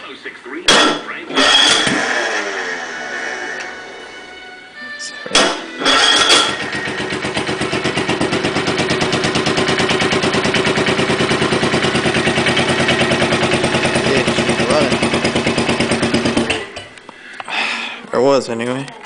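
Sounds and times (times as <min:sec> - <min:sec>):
engine starting bang: 0:00.7 - 0:03.5, 0:05.4 - 0:07.3
tractor engine running: 0:05.4 - 0:17.0.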